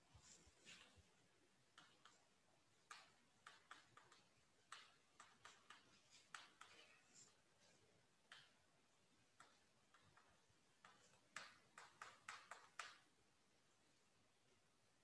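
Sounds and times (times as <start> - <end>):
chalk tapping and scratching: 1.7 - 8.6, 9.3 - 13.1.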